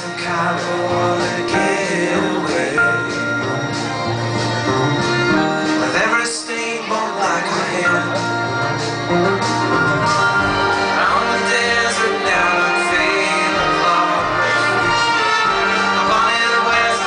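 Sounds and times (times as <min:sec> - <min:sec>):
man singing: 0:00.0 - 0:04.0, 0:05.4 - 0:09.2, 0:10.4 - 0:17.0
acoustic guitar: 0:00.0 - 0:17.0
orchestral strings: 0:00.0 - 0:17.0.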